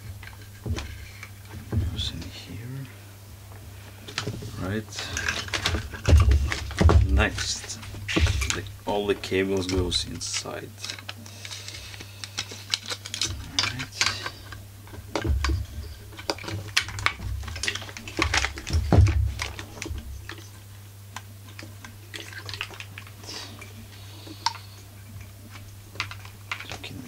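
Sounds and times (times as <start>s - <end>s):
clicks and knocks on plastic: 5.1s - 10.0s, 12.4s - 20.4s.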